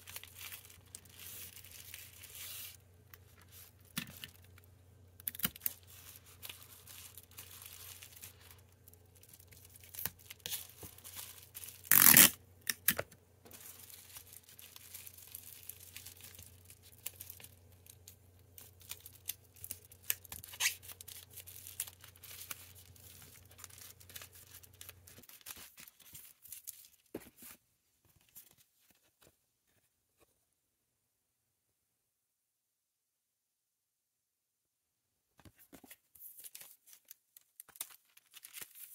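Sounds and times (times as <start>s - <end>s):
plastic crinkling and rustling: 0.0s - 12.3s, 13.5s - 29.3s, 35.5s - 38.9s
packing tape pulled and torn: 5.2s - 8.2s, 9.6s - 13.1s, 18.8s - 25.6s.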